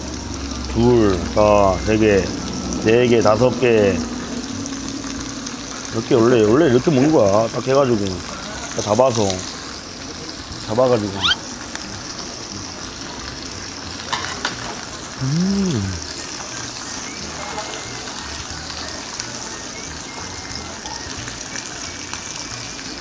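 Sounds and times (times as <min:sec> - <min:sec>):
pork sizzling on a griddle: 0:00.0 - 0:23.0
person humming: 0:15.2 - 0:16.2.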